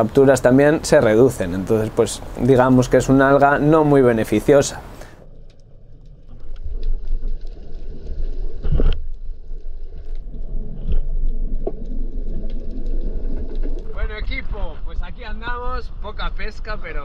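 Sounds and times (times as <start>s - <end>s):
underwater rumble of water: 0.3s - 16.6s
faint clicks: 5.0s - 13.9s.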